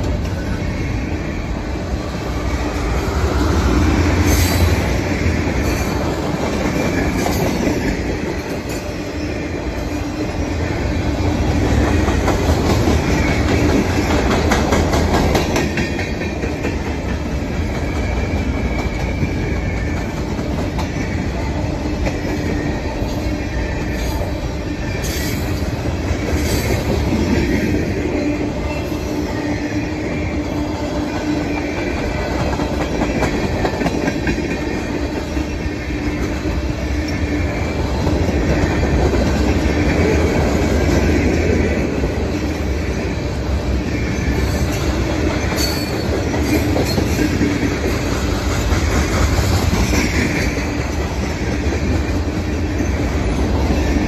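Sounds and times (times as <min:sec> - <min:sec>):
train wheels rumbling on rail: 0:00.0 - 0:54.0
clacking over rail joints: 0:11.5 - 0:21.2.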